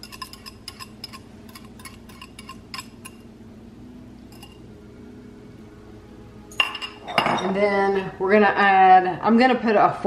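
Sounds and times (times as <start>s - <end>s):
glassware clinking: 4.3s - 4.6s, 6.5s - 7.6s.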